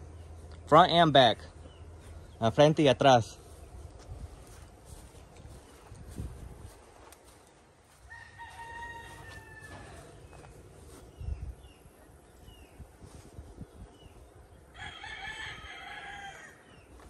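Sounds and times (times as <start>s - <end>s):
rooster crowing: 7.9s - 10.4s, 14.7s - 16.7s.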